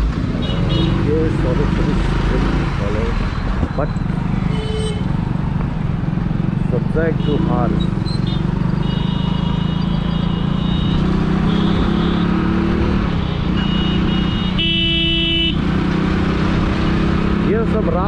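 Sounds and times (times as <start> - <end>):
motorcycle engine running: 0.0 - 16.0
vehicle horn: 0.4 - 1.1, 4.4 - 5.1, 7.1 - 15.7.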